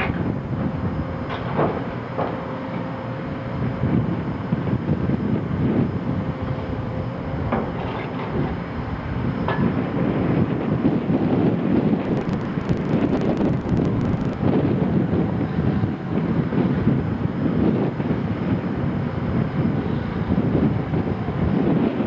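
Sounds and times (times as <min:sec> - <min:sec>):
wind buffeting microphone: 0:00.0 - 0:22.0
low uneven rumble: 0:03.3 - 0:18.4.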